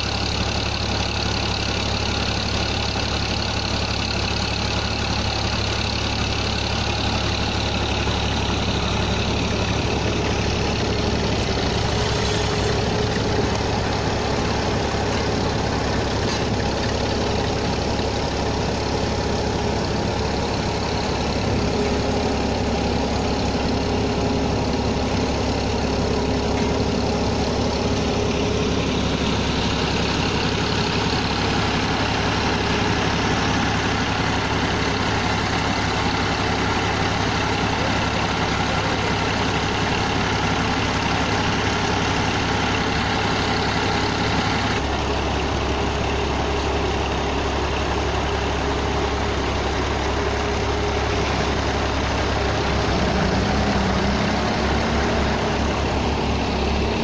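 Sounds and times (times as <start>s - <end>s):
diesel tractor engines running: 0.0s - 57.0s.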